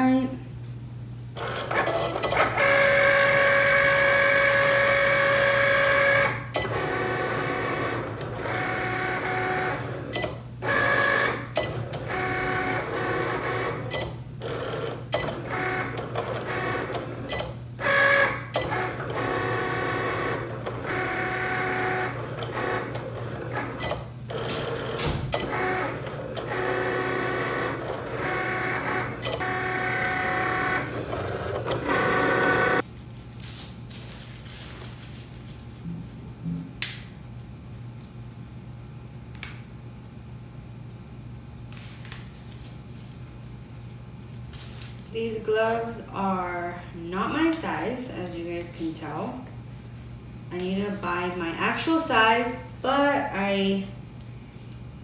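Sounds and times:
vinyl cutter motors whirring: 1.4 - 32.8.

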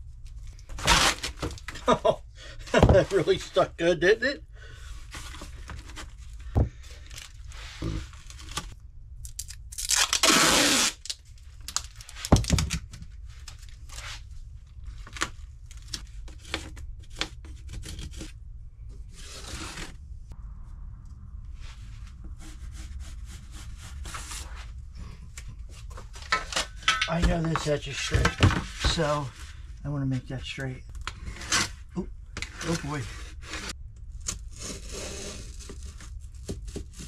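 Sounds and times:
tape ripping off a roll: 0.7 - 1.8, 7.0 - 14.2
crinkling handling noises: 4.7 - 10.4, 11.0 - 20.0.

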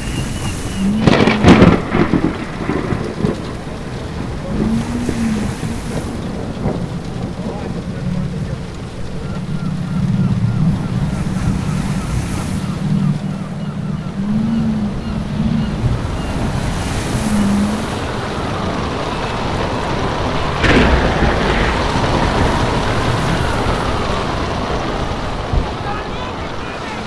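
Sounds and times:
waves rushing: 0.0 - 27.0
wind: 0.0 - 27.0
low tone: 13.2 - 16.0
sharp crack: 18.8 - 27.0.

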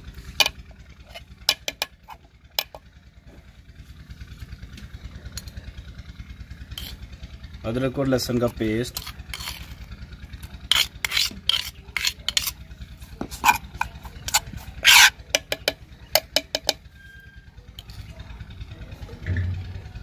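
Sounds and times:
steady low hum: 0.0 - 20.0
metal spoon scraping clay bowl: 0.3 - 2.8, 6.8 - 7.1, 8.4 - 18.0.

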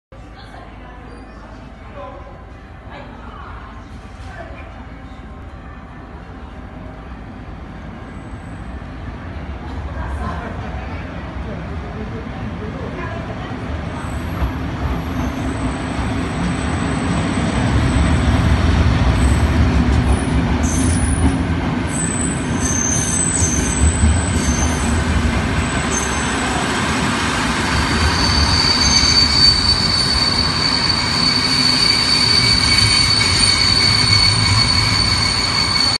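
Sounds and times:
train wheels rumbling on rail: 6.0 - 35.9
train brakes squealing: 14.0 - 18.3, 19.1 - 26.8, 27.6 - 35.9.

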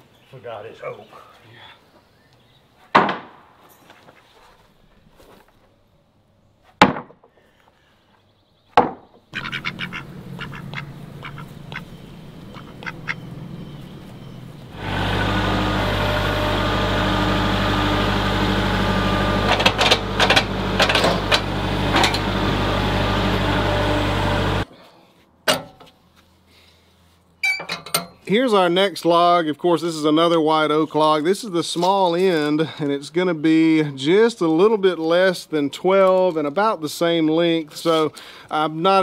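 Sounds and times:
wooden boards knocking: 2.9 - 3.4, 6.8 - 7.3, 8.8 - 9.2
tractor engine running: 9.4 - 24.7
metal clanks: 25.5 - 25.9, 27.4 - 28.2.

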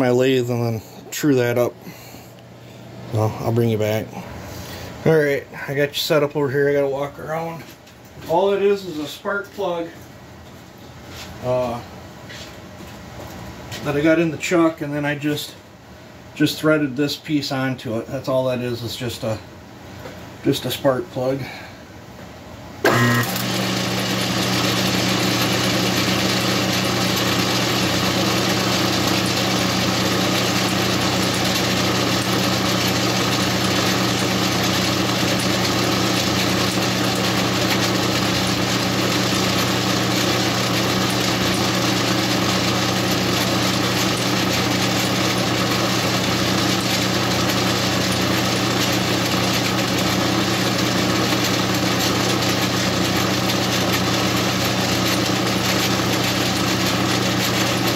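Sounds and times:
metal lathe motor humming: 22.9 - 57.9.

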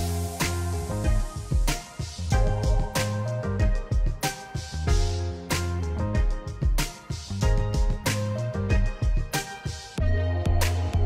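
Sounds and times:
held bass notes: 0.0 - 1.6
deep drum thumps: 1.0 - 3.0, 3.6 - 4.2, 4.9 - 5.2, 7.4 - 8.1, 8.7 - 9.3.

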